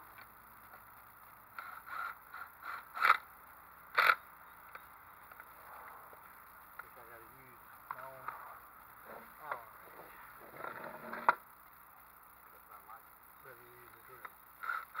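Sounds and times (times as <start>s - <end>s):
cordless drill driving a screw: 1.5s - 3.2s, 14.6s - 15.0s.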